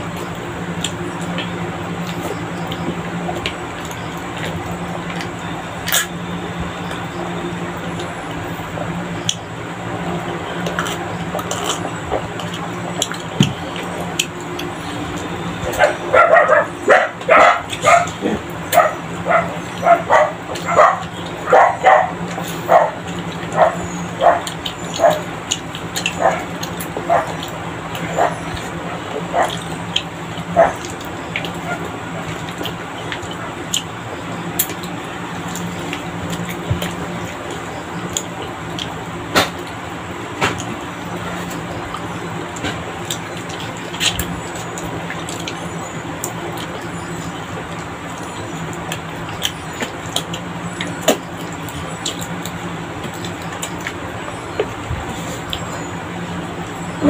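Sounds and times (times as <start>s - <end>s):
steady low hum: 0.0s - 57.0s
dog barking: 15.7s - 25.3s, 26.2s - 26.5s, 27.1s - 27.5s, 28.1s - 29.6s, 30.5s - 30.8s.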